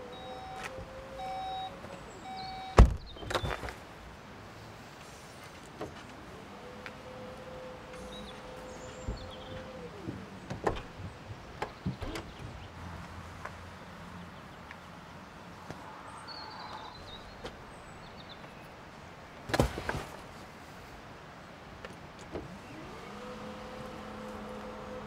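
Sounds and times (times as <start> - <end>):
tailgate latching clicks and knocks: 2.7 - 3.8, 7.9 - 12.7
tailgate motor hum: 5.8 - 12.7, 22.3 - 25.0.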